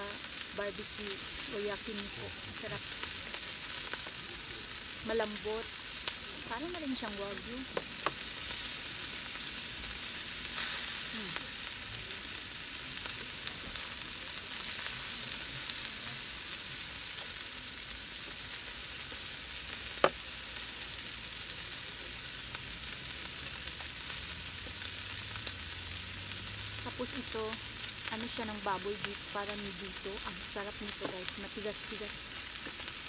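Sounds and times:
meat sizzling in a pan: 0:00.0 - 0:33.0.

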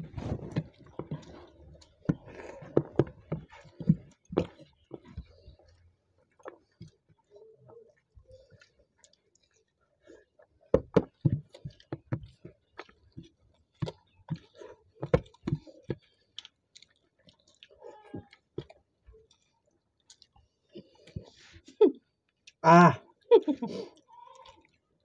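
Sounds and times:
people chewing: 0:00.0 - 0:25.0
clicks and taps on plastic plates: 0:00.5 - 0:05.5, 0:10.7 - 0:16.1.

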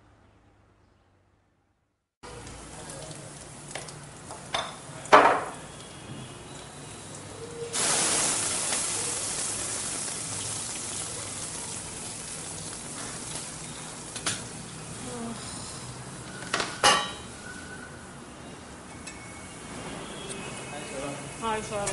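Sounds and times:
food sizzling in hot oil: 0:05.5 - 0:15.1, 0:20.4 - 0:21.9
kitchen utensils clanking: 0:16.5 - 0:17.3.

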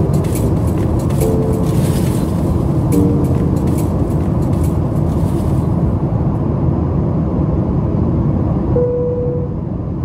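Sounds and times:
airplane cabin engine rumble: 0:00.0 - 0:10.0
brief steady tone: 0:08.8 - 0:09.6.

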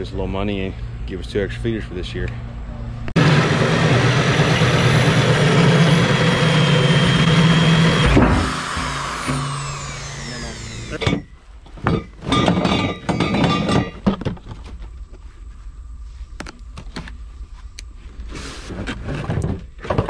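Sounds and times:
metal legs clattering: 0:10.9 - 0:14.6
metallic ring: 0:11.0 - 0:14.0.

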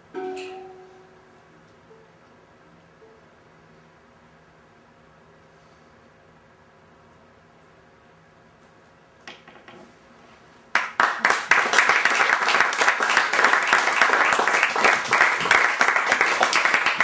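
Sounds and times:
audience applause: 0:10.7 - 0:17.0.

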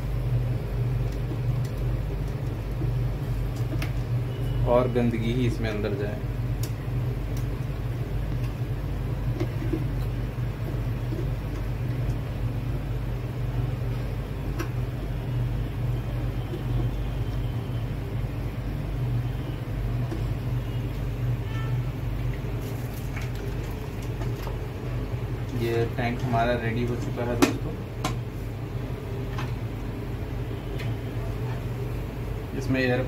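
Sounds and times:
low mechanical hum: 0:00.0 - 0:33.0.

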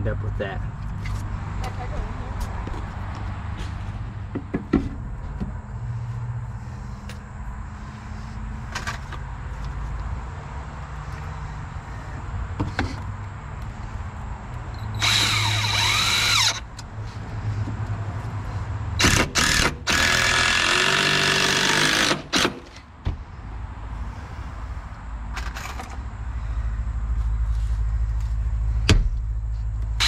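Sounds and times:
power drill driving screws into wood: 0:15.0 - 0:16.6, 0:19.0 - 0:22.8.

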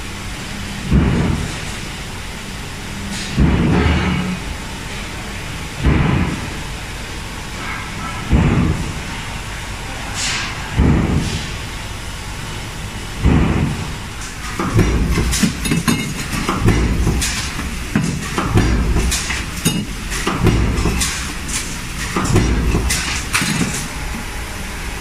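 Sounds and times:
heavy thuds of presses: 0:00.9 - 0:01.7, 0:03.2 - 0:04.5, 0:05.8 - 0:06.6, 0:08.2 - 0:09.2, 0:10.2 - 0:11.6, 0:13.2 - 0:24.0
machinery din: 0:03.4 - 0:04.6, 0:13.2 - 0:24.2
sharp metallic clanks: 0:14.4 - 0:24.0.

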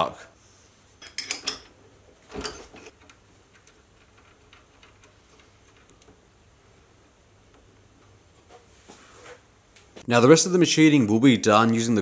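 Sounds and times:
metallic clunk: 0:01.0 - 0:03.1.

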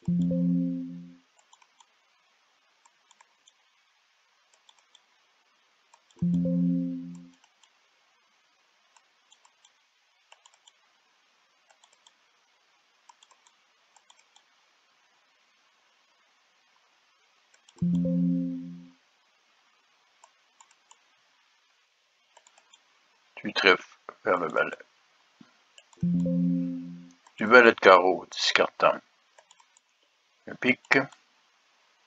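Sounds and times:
computer mouse clicks: 0:01.4 - 0:02.0, 0:02.8 - 0:03.6, 0:04.5 - 0:05.1, 0:05.9 - 0:07.8, 0:08.9 - 0:10.8, 0:11.6 - 0:12.2, 0:13.0 - 0:14.5, 0:17.5 - 0:18.1, 0:20.2 - 0:21.0, 0:22.3 - 0:22.9, 0:25.8 - 0:27.4, 0:29.3 - 0:30.0.

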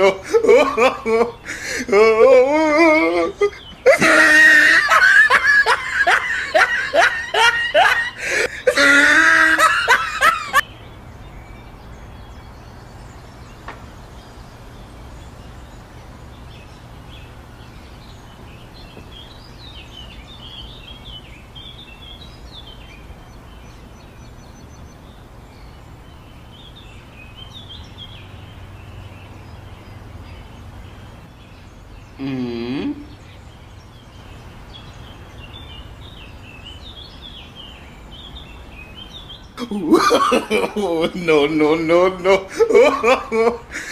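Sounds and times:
hearty laughter: 0:00.0 - 0:10.6, 0:39.6 - 0:43.9
bird chirps: 0:03.2 - 0:43.9.

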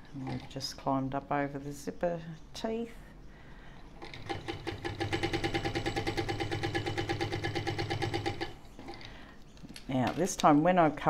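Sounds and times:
sewing machine motor hum: 0:04.0 - 0:09.2.

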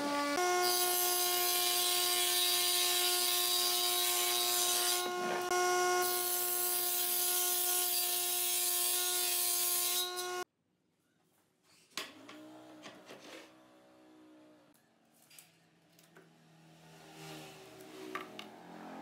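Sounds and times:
table saw ripping wood: 0:00.4 - 0:10.4.

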